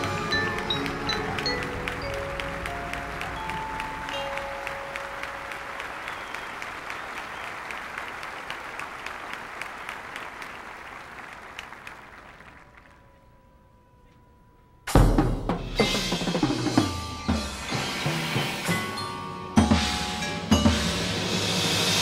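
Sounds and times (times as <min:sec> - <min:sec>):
drum and bugle music: 0:00.0 - 0:07.1, 0:14.9 - 0:22.0
stadium crowd applauding: 0:00.0 - 0:13.3.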